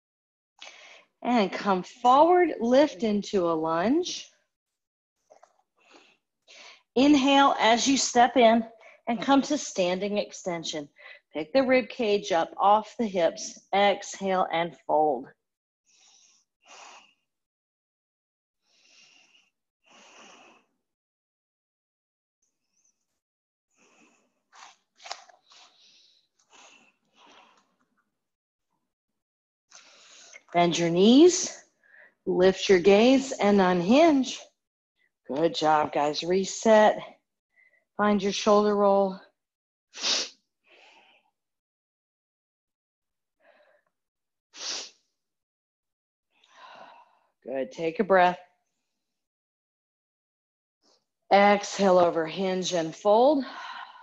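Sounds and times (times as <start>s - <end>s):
faint breathing of woman: 15.9s - 17.3s, 18.6s - 20.8s, 46.4s - 47.4s.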